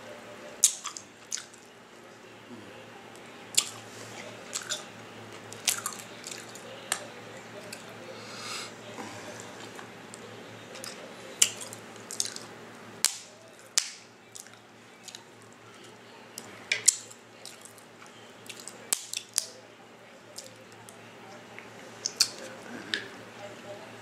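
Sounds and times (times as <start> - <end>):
shells cracking and clicking: 18.5 - 19.6
faint wet mouth sounds: 22.0 - 23.2.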